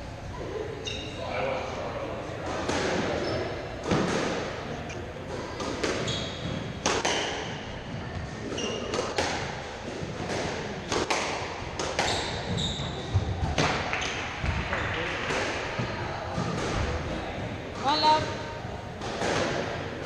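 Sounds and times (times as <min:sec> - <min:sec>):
squash ball hits echoing: 0:02.4 - 0:04.6, 0:05.2 - 0:20.0
shoes squeaking on wooden floor: 0:05.8 - 0:07.2, 0:08.4 - 0:09.0, 0:12.0 - 0:13.1.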